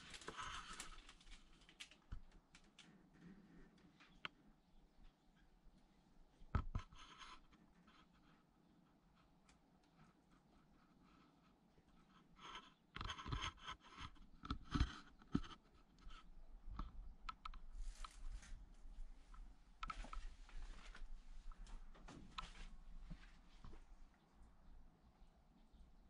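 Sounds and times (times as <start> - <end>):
rustling and crunching: 0.0 - 4.2, 12.5 - 24.1.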